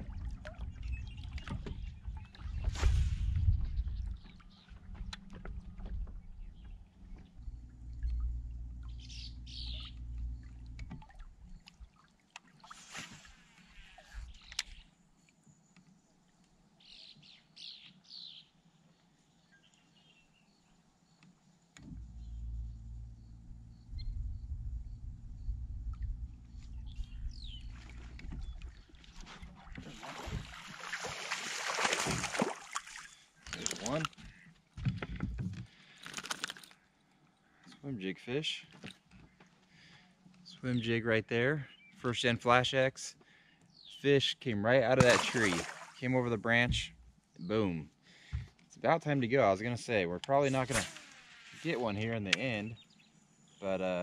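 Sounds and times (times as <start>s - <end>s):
small birds chirping: 6.0s - 10.7s, 13.6s - 16.0s, 26.4s - 29.0s, 43.2s - 44.1s, 51.6s - 54.0s.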